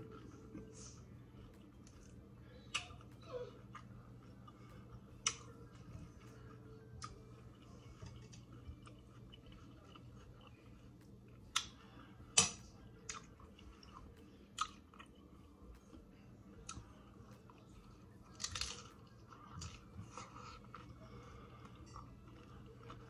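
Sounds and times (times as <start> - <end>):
wet chewing: 0.0 - 23.0
crisp taco crunches: 16.6 - 23.0.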